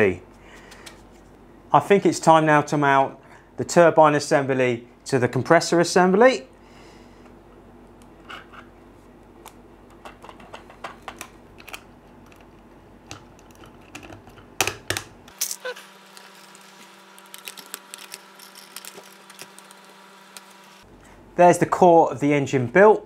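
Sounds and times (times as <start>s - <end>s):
plastic parts clicking and knocking: 9.9s - 15.2s.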